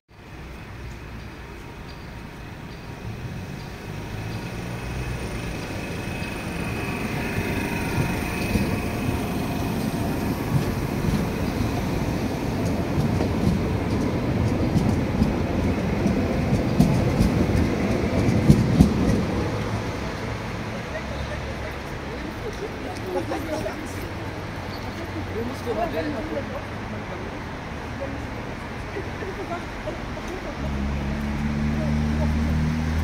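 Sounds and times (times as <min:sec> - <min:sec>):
light rail wheels rumbling: 0:00.1 - 0:33.0.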